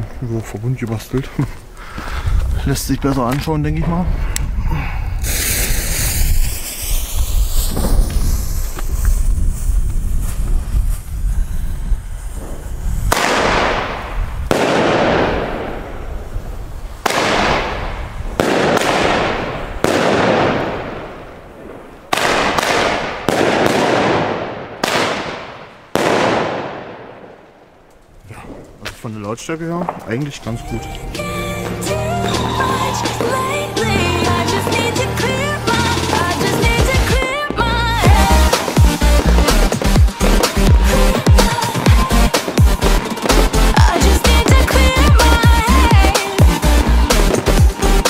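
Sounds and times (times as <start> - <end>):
firework fuse hiss: 5.1 - 21.2, 30.9 - 48.0
firework launch thumps and bangs: 5.2 - 9.2, 12.4 - 15.9, 17.0 - 21.2, 36.1 - 38.8.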